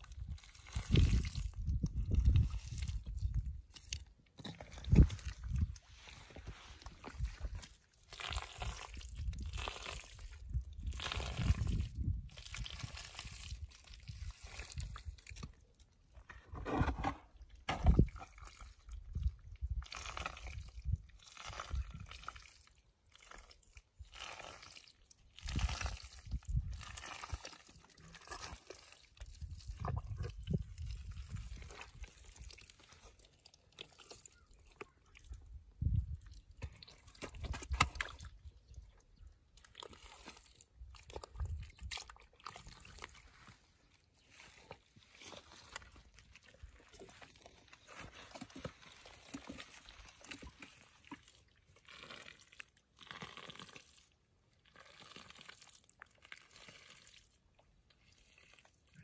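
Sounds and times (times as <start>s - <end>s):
hands squelching in wet mud: 17.8s - 59.0s.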